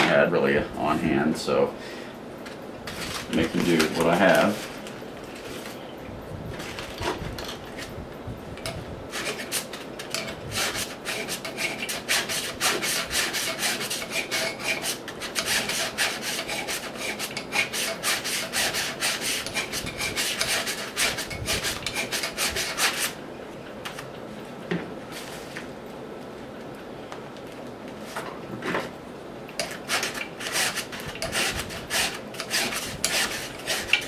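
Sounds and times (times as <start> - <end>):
hand file rasping on metal: 9.2 - 23.2, 29.6 - 34.0.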